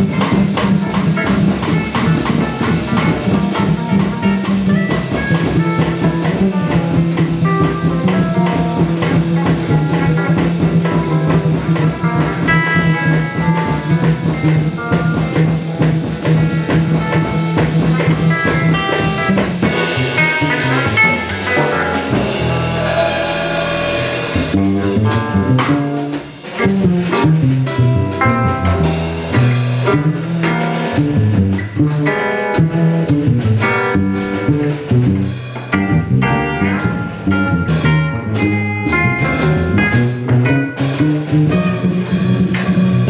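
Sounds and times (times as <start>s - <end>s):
jazz-rock trio playing live: 0.0s - 43.0s.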